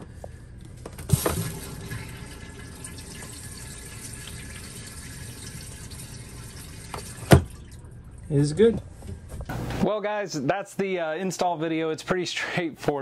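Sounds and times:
water running through toilet: 1.0 - 8.4.

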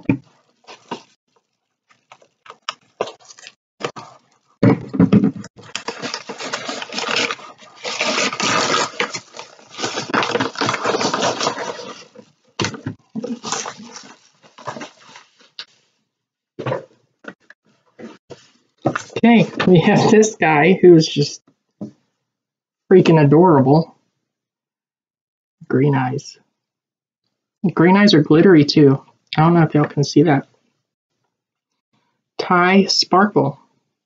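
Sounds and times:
wrapping paper crinkling and tearing: 0.3 - 4.5, 5.6 - 15.7.

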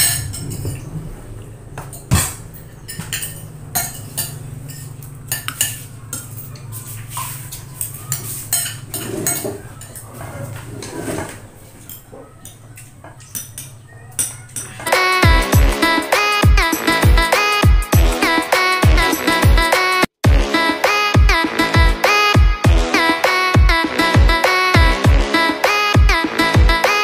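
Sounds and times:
cutlery clinking on plates: 0.0 - 0.9, 1.8 - 14.9.

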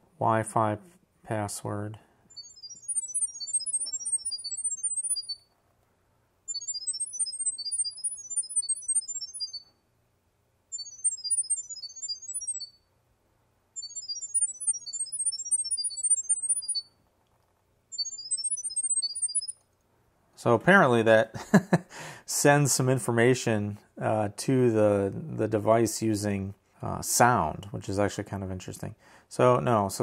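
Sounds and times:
high-pitched chirping beeps: 2.3 - 5.5, 6.5 - 9.7, 10.7 - 12.9, 13.8 - 17.0, 17.9 - 19.6.

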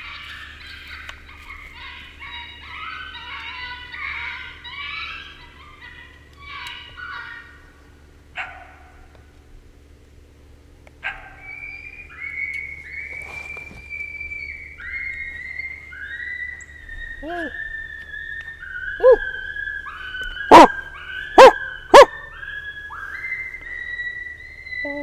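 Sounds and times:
coyote yelping: 0.0 - 7.8, 8.4 - 9.2, 11.0 - 12.8, 16.0 - 23.1
coyote barking: 0.0 - 9.2, 11.0 - 12.4, 18.8 - 23.2.

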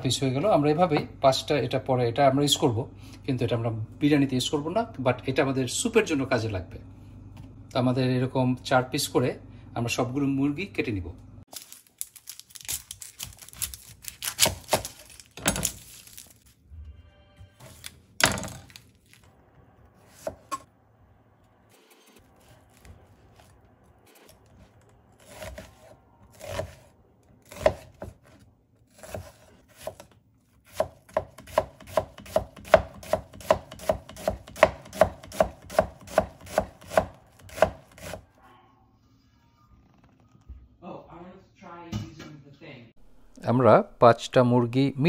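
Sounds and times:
knife chopping on cutting board: 14.0 - 15.7, 20.1 - 20.6, 25.2 - 38.2.

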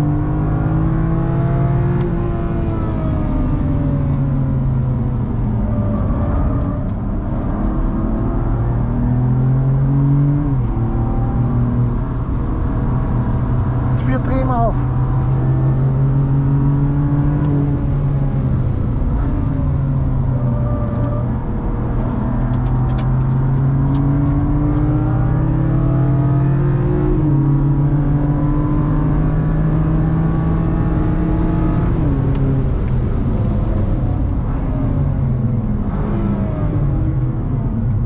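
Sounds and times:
car engine revving: 0.0 - 38.0
tyre and road noise: 1.2 - 27.9.

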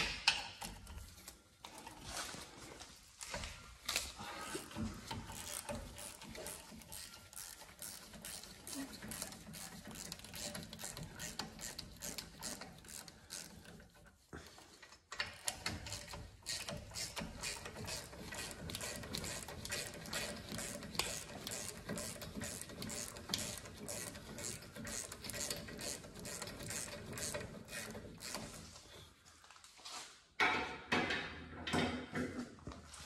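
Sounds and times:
hand ratchet clicking: 3.9 - 14.1, 15.1 - 28.8.

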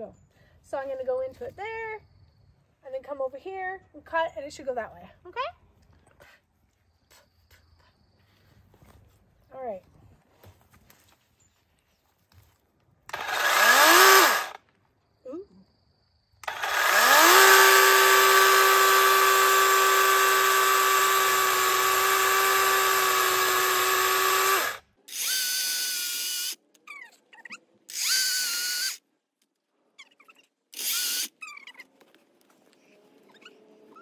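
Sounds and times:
chainsaw cutting tree trunk: 13.1 - 14.6, 16.4 - 25.8
electric chainsaw whining: 13.1 - 14.6, 16.4 - 26.6, 27.9 - 29.0, 30.8 - 31.4.

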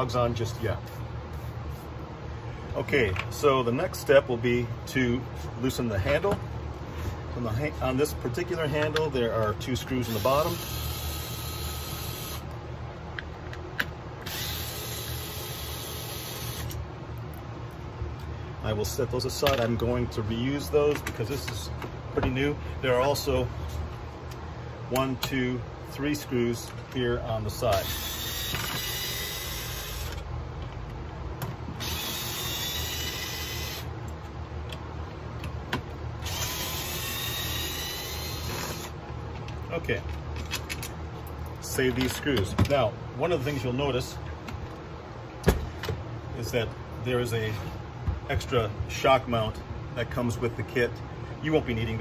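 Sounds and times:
cordless screwdriver running: 10.1 - 12.4, 14.2 - 16.8, 27.8 - 30.2, 31.8 - 33.9, 36.2 - 38.9.

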